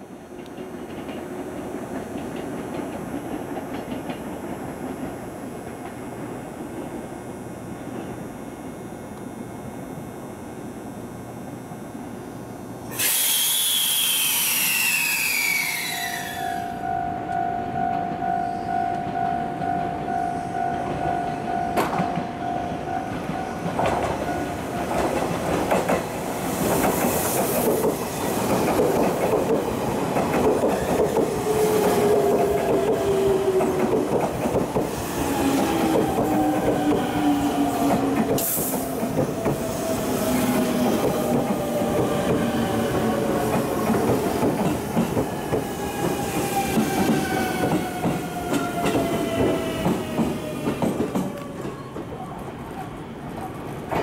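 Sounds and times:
train motor whine: 0:00.1 - 0:18.7, 0:21.8 - 0:52.0
train rail clatter: 0:00.3 - 0:06.9, 0:23.0 - 0:54.0
train sharp clanks: 0:00.3 - 0:06.9, 0:12.9 - 0:52.1.

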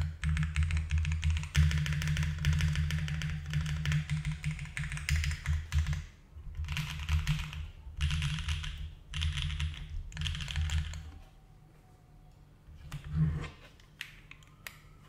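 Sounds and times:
mechanical keyboard typing: 0:00.0 - 0:06.0, 0:06.6 - 0:11.0.

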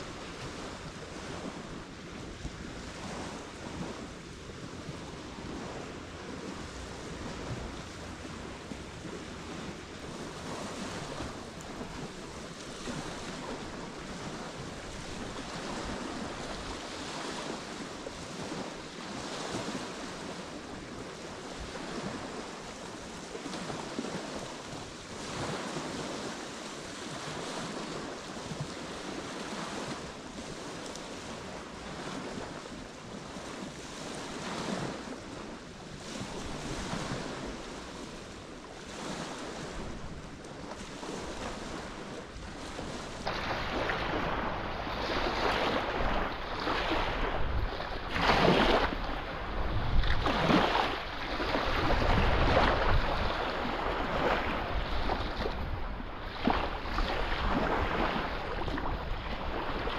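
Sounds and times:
waves washing on shore: 0:00.0 - 0:59.9
wind buffeting microphone: 0:00.0 - 0:59.9.

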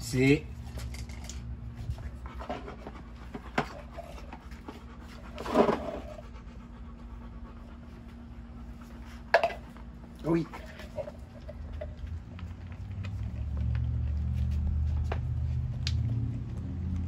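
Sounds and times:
dog panting: 0:01.9 - 0:09.3.

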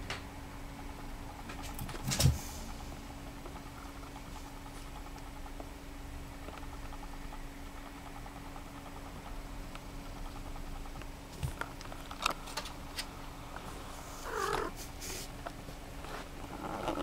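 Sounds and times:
cat purring: 0:13.6 - 0:15.2, 0:16.1 - 0:17.0
cat calling: 0:14.2 - 0:14.8.

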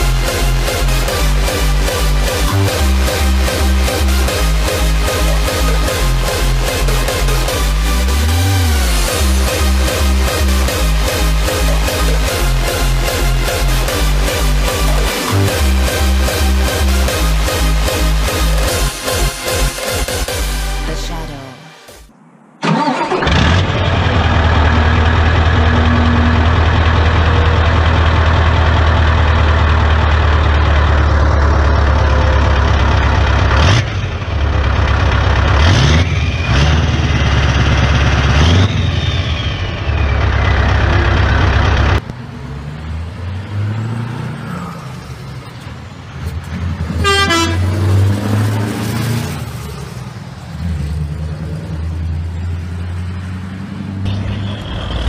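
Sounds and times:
quieter truck engine: 0:00.0 - 0:21.1, 0:22.1 - 0:55.0
truck engine exhaust rumble: 0:22.6 - 0:55.0.

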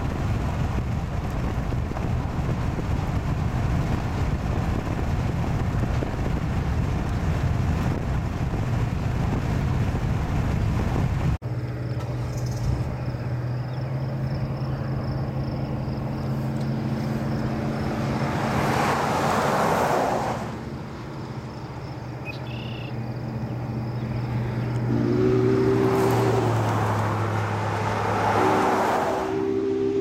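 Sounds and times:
low engine hum: 0:00.0 - 0:30.0
steam whistle chord: 0:24.9 - 0:26.2, 0:29.3 - 0:30.0.

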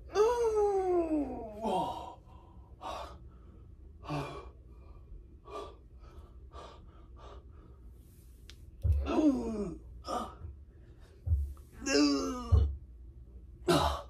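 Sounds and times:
man groaning: 0:00.1 - 0:02.2, 0:08.9 - 0:10.4, 0:11.8 - 0:12.7.

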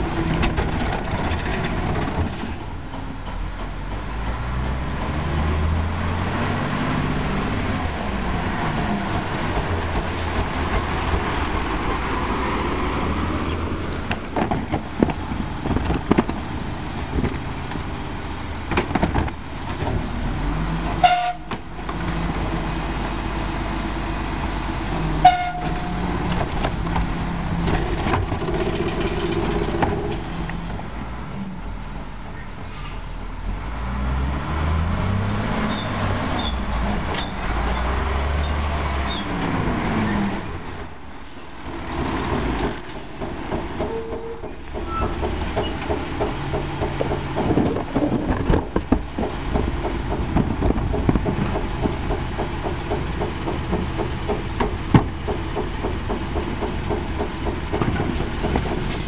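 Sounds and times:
garbage truck diesel engine: 0:00.0 - 0:59.0
short horn toots: 0:21.0 - 0:21.5, 0:25.2 - 0:26.0.

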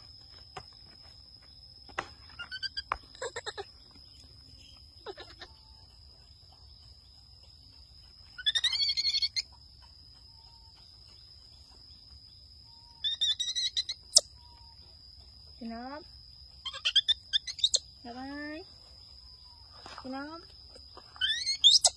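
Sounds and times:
baby monkey squeaking: 0:02.4 - 0:03.7, 0:05.0 - 0:05.8, 0:08.3 - 0:09.5, 0:12.8 - 0:14.8, 0:16.6 - 0:18.0, 0:21.1 - 0:21.9.

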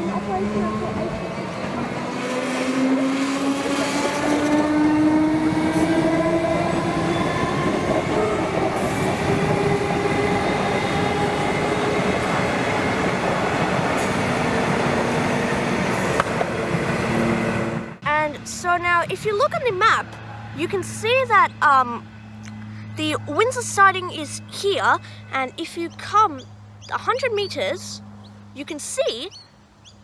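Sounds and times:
electric train motor whine: 0:00.0 - 0:18.0, 0:21.5 - 0:23.4
wheel and track noise: 0:00.0 - 0:23.4.

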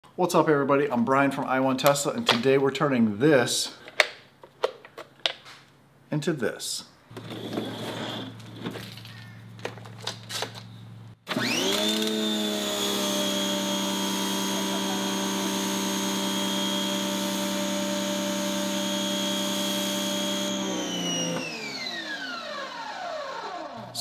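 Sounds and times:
pressure washer motor whine: 0:11.3 - 0:24.0.

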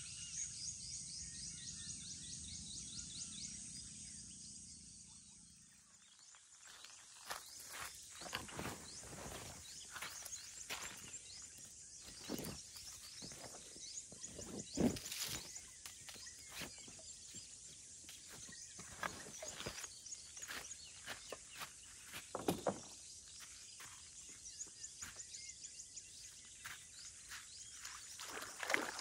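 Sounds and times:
faint high chirping: 0:00.0 - 0:29.0
footsteps on sand: 0:06.7 - 0:25.4, 0:26.2 - 0:29.0
canvas bag rustling: 0:07.5 - 0:16.9.

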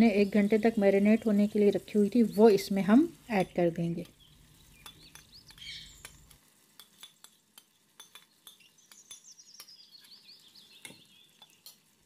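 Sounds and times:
meat frying in oil: 0:00.0 - 0:12.0
small crackling pops: 0:03.3 - 0:12.0.

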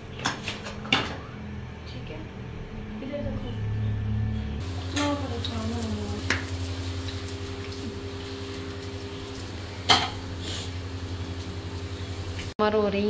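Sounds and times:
steady low hum: 0:00.0 - 0:13.0
dishes and utensils clinking: 0:09.8 - 0:10.3.

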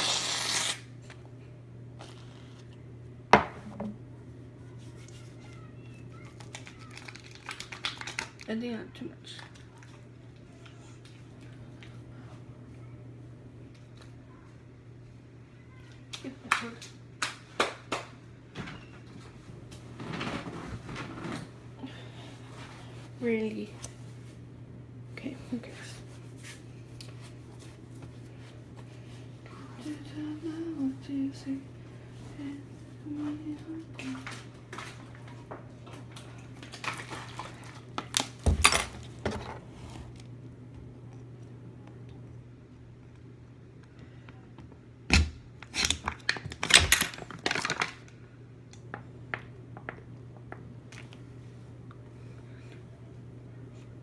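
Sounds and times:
faint low hum: 0:00.0 - 0:54.0
objects knocking on hard surface: 0:03.4 - 0:04.0.

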